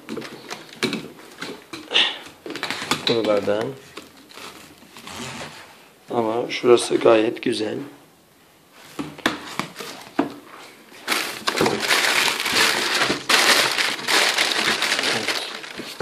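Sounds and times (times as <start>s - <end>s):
plastic bag crinkling: 11.0s - 16.0s.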